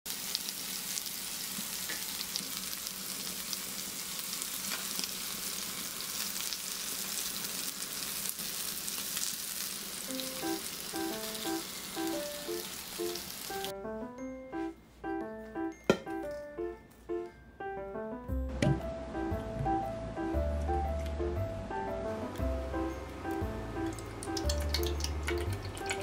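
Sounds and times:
meat sizzling on grill pan: 0:00.1 - 0:13.7
light piano-like music: 0:10.1 - 0:26.0.

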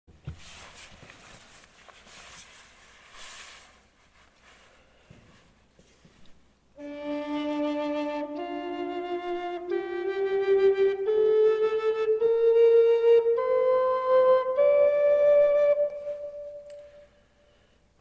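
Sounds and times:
faint breathy hiss: 0:00.3 - 0:07.0, 0:16.0 - 0:18.0
wooden flute playing: 0:06.8 - 0:17.3.

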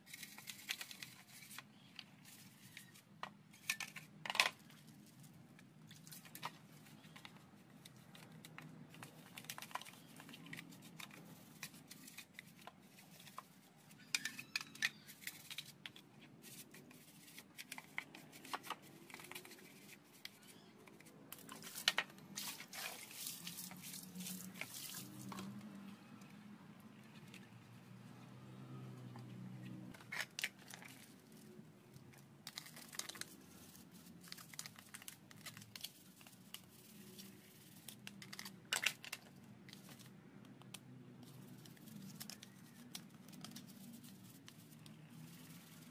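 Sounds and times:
brush scrubbing plastic: 0:21.4 - 0:25.6.

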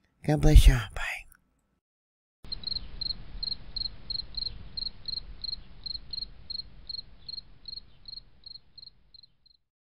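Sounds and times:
cricket chirping: 0:02.5 - 0:09.6.

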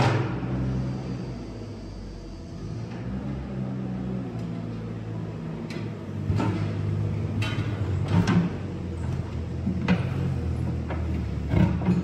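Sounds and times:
metallic knocks and clanks: 0:07.3 - 0:08.6.

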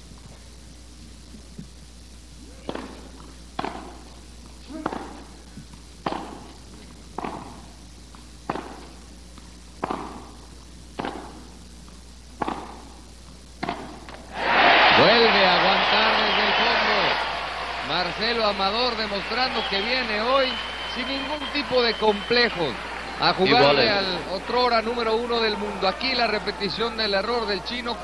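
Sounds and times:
tennis ball hit with rackets: 0:02.7 - 0:03.0, 0:03.6 - 0:04.0, 0:04.8 - 0:05.2, 0:06.0 - 0:06.5, 0:07.2 - 0:07.6, 0:08.5 - 0:08.9, 0:09.8 - 0:10.3, 0:11.0 - 0:11.4, 0:12.4 - 0:12.8, 0:13.6 - 0:14.0.

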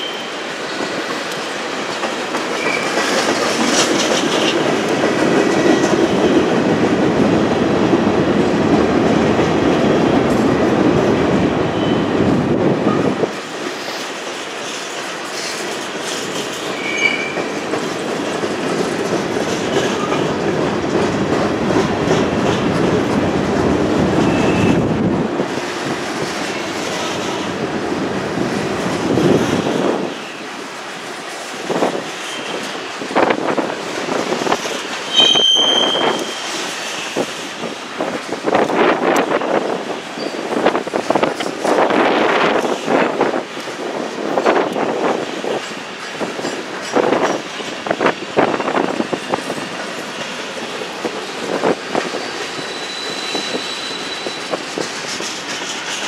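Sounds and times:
train wheels rumbling on rails: 0:00.0 - 0:56.0
high wheel squeals: 0:16.8 - 0:17.5, 0:35.1 - 0:37.2, 0:52.2 - 0:54.8.

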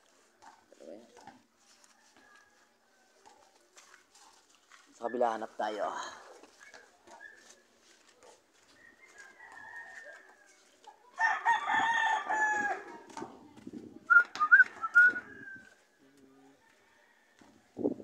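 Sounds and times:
rooster crowing: 0:08.8 - 0:12.9.

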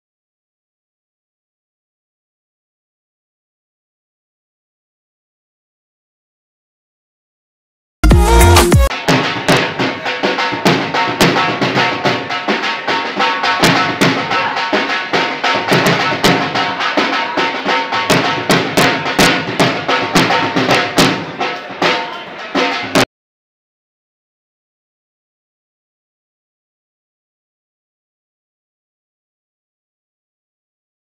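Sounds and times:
drum-led dance music: 0:08.0 - 0:23.0.

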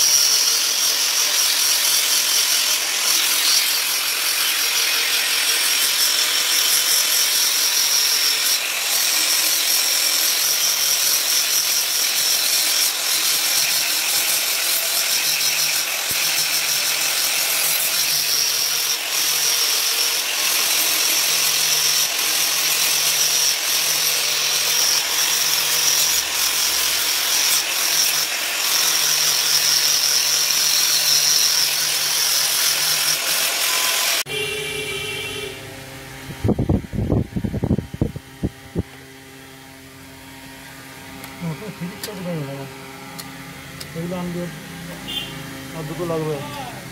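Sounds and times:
angle grinder sharpening steel blade: 0:00.0 - 0:34.4.

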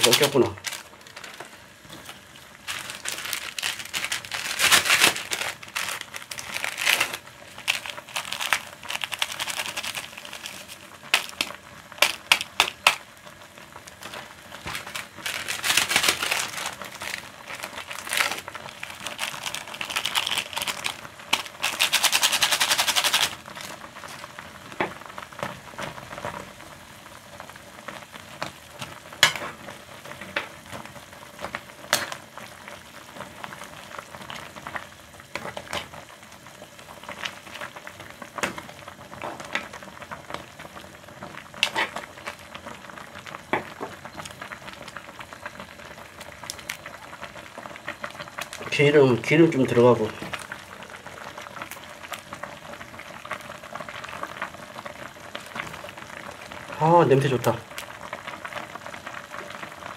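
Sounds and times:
plastic sachets crinkling and tearing: 0:00.0 - 0:13.1, 0:13.8 - 0:24.4, 0:44.2 - 0:48.9
pot hissing on stove: 0:00.0 - 0:59.9.

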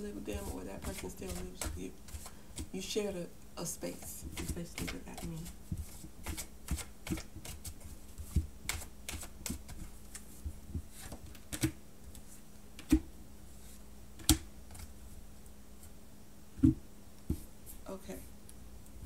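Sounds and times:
cards being shuffled: 0:00.4 - 0:02.7, 0:04.3 - 0:10.3.

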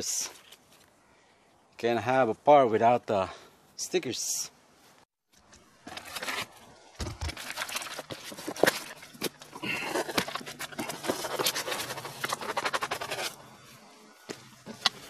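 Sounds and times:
cardboard and paper crinkling: 0:05.8 - 0:13.4.

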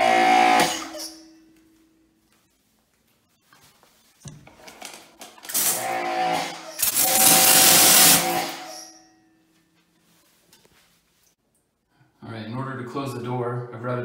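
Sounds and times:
pressure washer motor humming: 0:05.5 - 0:08.7
water spray hissing on tiles: 0:06.8 - 0:08.5.

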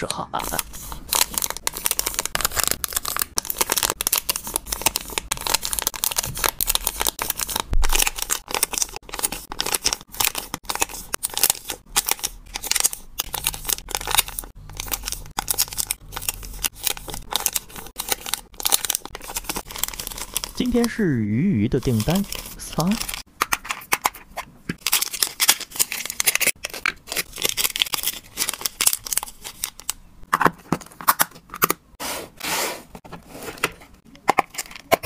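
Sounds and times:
plastic bags crinkling: 0:00.4 - 0:21.0, 0:21.8 - 0:23.3, 0:24.8 - 0:30.0.

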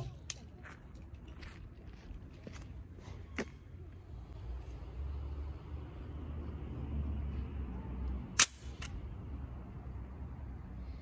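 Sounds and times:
toy launcher sharp snap: 0:08.4 - 0:09.0.

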